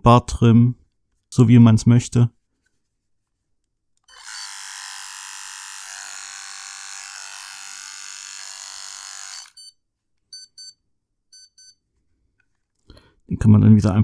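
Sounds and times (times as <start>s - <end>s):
electric shaver motor hum: 4.1s - 9.6s.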